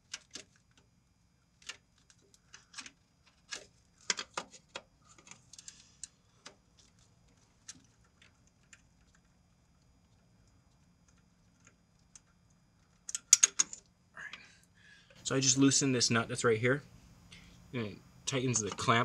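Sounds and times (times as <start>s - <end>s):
sharp metal clicks of hand tool: 13.1s - 13.8s.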